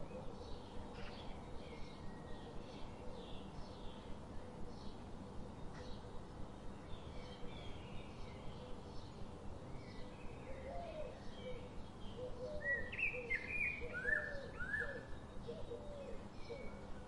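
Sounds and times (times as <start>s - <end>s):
small birds chirping: 0.0s - 17.0s
steady background hiss: 0.0s - 17.0s.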